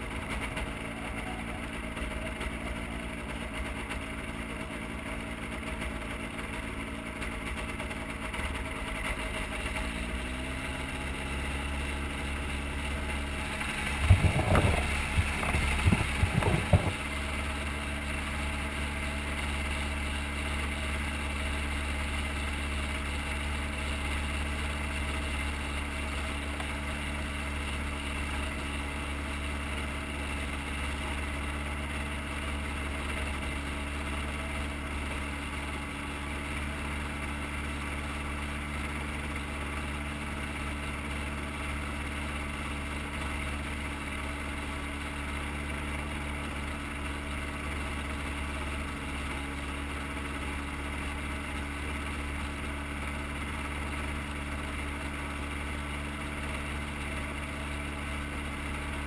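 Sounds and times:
gyrocopter engine idling: 0.0 - 59.0.

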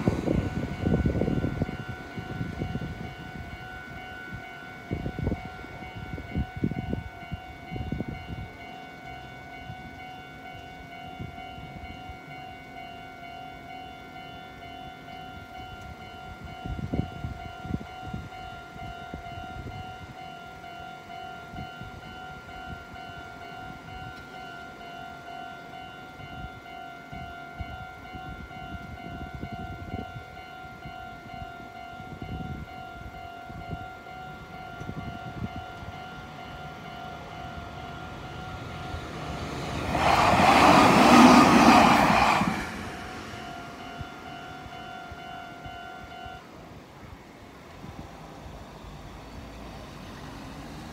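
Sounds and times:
level crossing alarm ringing: 0.0 - 46.6
train passing: 0.0 - 50.9
road traffic rumbles: 33.6 - 45.7, 46.4 - 50.9.

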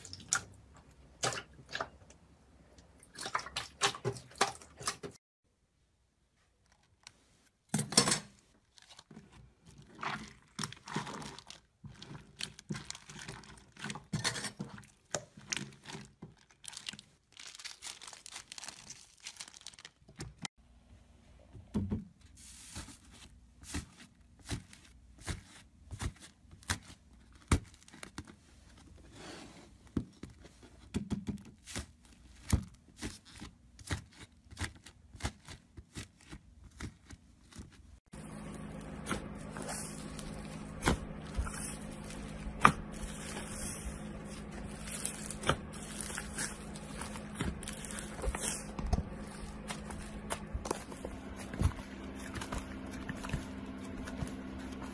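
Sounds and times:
slime squelching in plastic bag: 8.5 - 20.5, 31.6 - 54.9.

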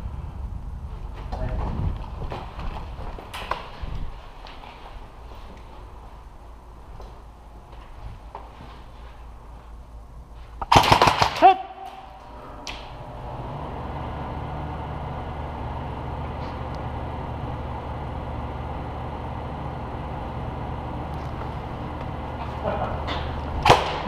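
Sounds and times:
steady low hum: 0.0 - 24.0
airsoft gun rapid burst: 10.7 - 11.6.

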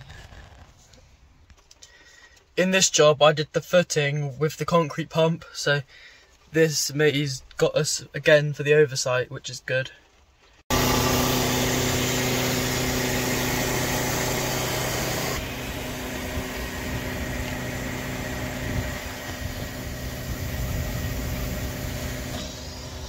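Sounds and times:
diesel engine humming: 10.7 - 23.0.

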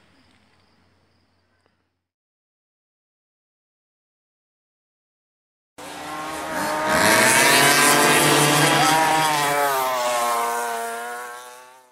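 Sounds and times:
racing engine revving: 5.8 - 11.9.

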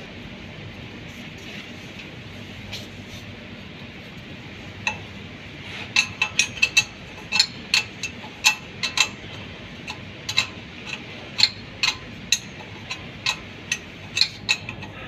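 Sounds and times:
steady background hum: 0.0 - 15.0
spanner clinking against bolt: 4.8 - 5.2, 5.8 - 15.0.

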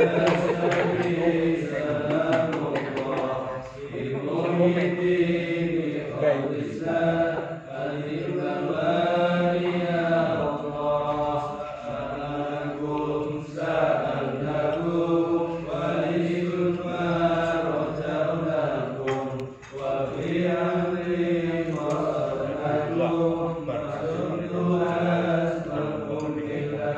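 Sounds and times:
men chanting prayers: 0.0 - 26.9.

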